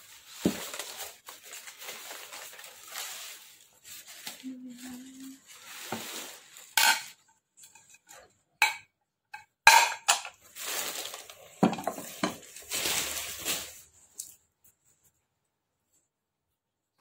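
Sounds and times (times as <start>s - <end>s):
plastic wrapping rustling: 0.0s - 8.3s, 9.8s - 15.1s
plates clinking: 6.8s - 8.0s, 8.6s - 10.4s.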